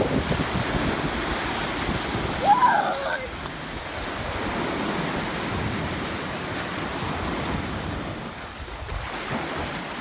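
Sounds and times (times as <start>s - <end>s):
ocean surf washing ashore: 0.0s - 10.0s
wind buffeting microphone: 0.0s - 10.0s.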